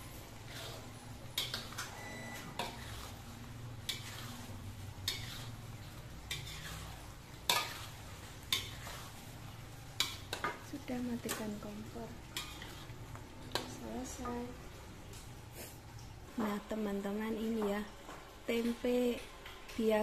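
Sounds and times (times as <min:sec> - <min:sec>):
metal spatula scraping a wok: 0:00.4 - 0:01.8, 0:02.4 - 0:10.5, 0:12.3 - 0:13.8.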